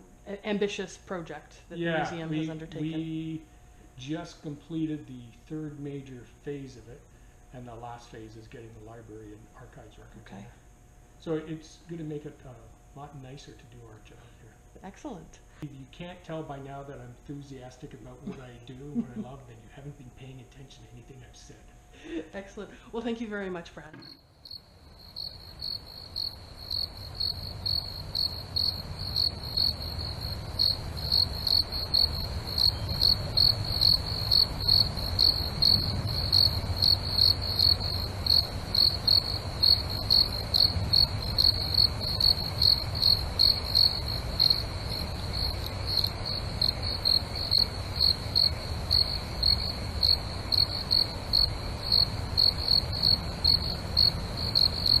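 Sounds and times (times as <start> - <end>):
faint low hum: 0.0 - 55.0
cricket chirping: 24.0 - 55.0.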